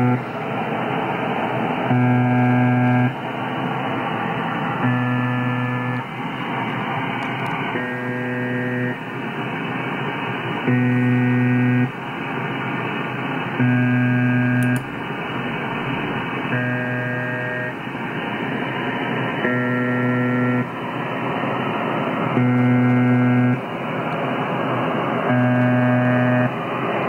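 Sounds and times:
low rich buzz: 0:00.0 - 0:00.3, 0:01.8 - 0:03.2, 0:04.8 - 0:06.1, 0:07.7 - 0:09.0, 0:10.7 - 0:11.9, 0:13.6 - 0:17.8, 0:19.4 - 0:20.8, 0:22.3 - 0:23.6, 0:25.2 - 0:26.5.

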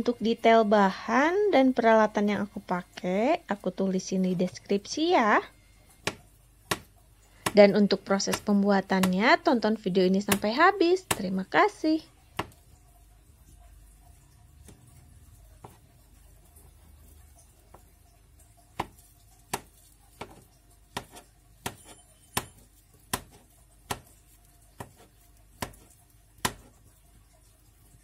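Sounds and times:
knife chopping on plastic board: 0:06.0 - 0:09.4, 0:10.2 - 0:11.4, 0:12.4 - 0:12.6, 0:14.6 - 0:14.8, 0:15.6 - 0:15.8, 0:18.7 - 0:26.8.

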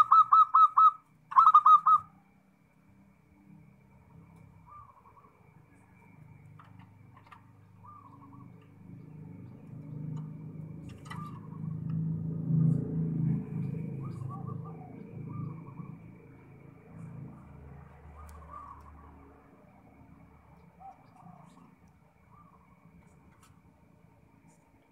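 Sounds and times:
dove cooing: 0:00.0 - 0:02.2, 0:07.8 - 0:12.0, 0:13.8 - 0:16.1, 0:18.0 - 0:19.2, 0:20.8 - 0:23.0
low rumble: 0:09.0 - 0:20.5.

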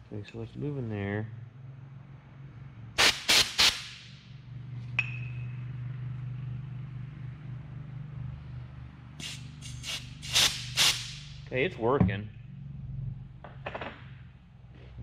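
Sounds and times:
compressed air blasts: 0:03.0 - 0:04.2, 0:09.2 - 0:11.4
steady low hum: 0:03.9 - 0:15.0.

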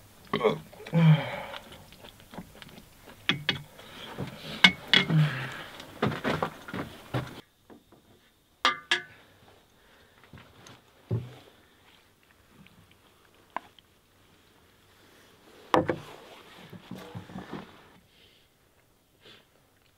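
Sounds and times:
mouth sounds: 0:00.3 - 0:02.2
ringing clinks of dishware: 0:08.7 - 0:09.2.

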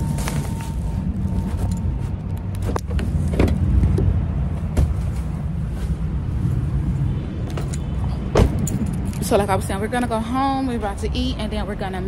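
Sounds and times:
car engine rumbling: 0:00.0 - 0:12.0.

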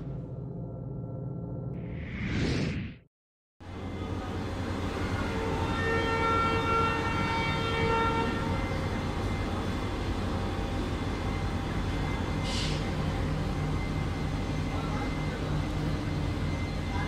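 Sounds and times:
train coaches rumbling: 0:03.7 - 0:17.0
train horn blast: 0:04.9 - 0:09.0.

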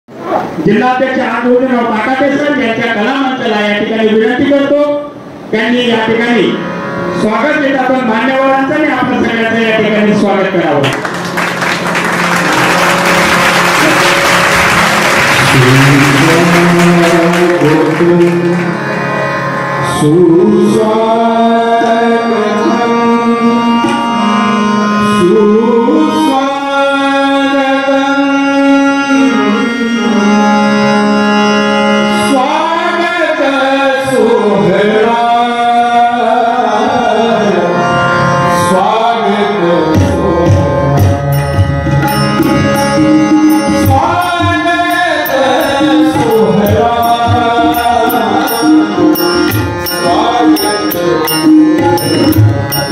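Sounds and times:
harmonium chords: 0:01.2 - 0:52.9
tabla drumming: 0:10.9 - 0:18.7, 0:39.9 - 0:52.9
man singing: 0:15.4 - 0:18.8, 0:19.8 - 0:24.3, 0:25.1 - 0:30.5, 0:32.2 - 0:37.9, 0:38.6 - 0:52.9
hand cymbals ticking: 0:41.0 - 0:52.9.

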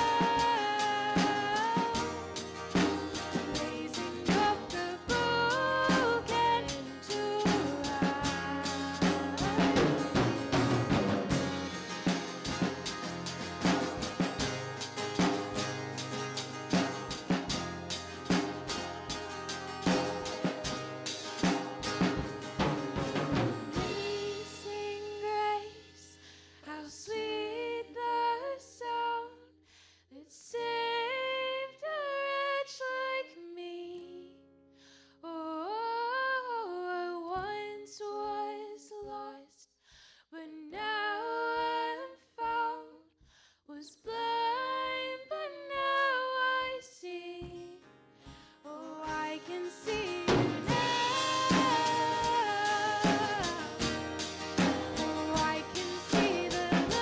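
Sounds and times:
women singing worship song: 0:00.0 - 0:02.2, 0:03.3 - 0:10.3, 0:49.0 - 0:54.0, 0:54.6 - 0:57.0
strummed acoustic guitars: 0:00.0 - 0:24.9, 0:47.5 - 0:57.0.

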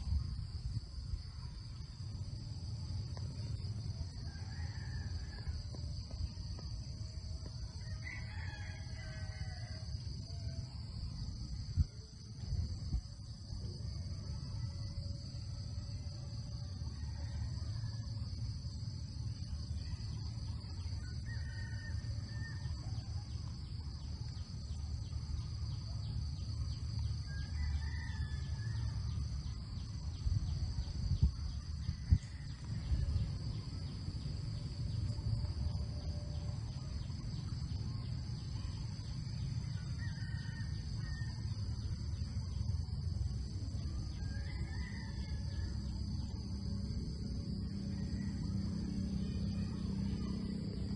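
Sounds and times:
high insect drone: 0:00.0 - 0:50.9
low rumble: 0:28.2 - 0:40.0.

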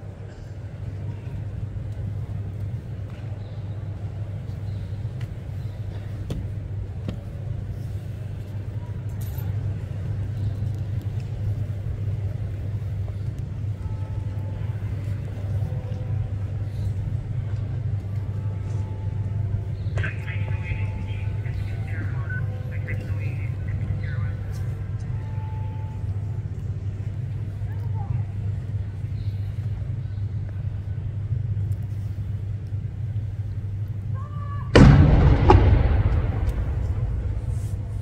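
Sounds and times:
low rumble: 0:34.7 - 0:38.0.

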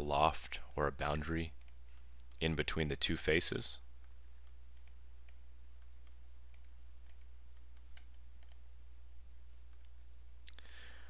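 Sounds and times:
computer mouse clicking: 0:01.6 - 0:02.5, 0:04.0 - 0:08.7.

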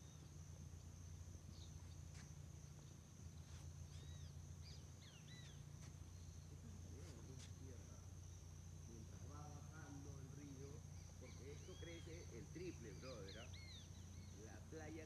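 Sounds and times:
high-pitched insect drone: 0:00.0 - 0:15.0
bird chirps: 0:03.9 - 0:06.5, 0:10.9 - 0:14.6.

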